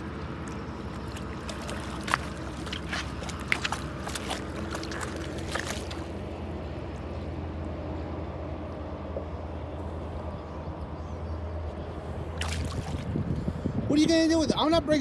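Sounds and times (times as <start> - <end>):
steady low rumble: 0.0 - 15.0
dogs splashing in water: 0.5 - 6.2.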